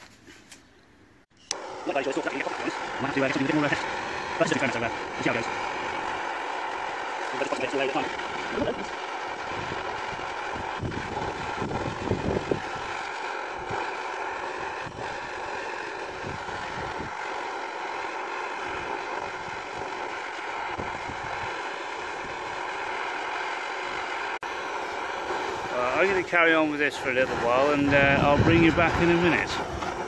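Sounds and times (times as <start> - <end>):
blowtorch hissing roar: 1.5 - 30.0.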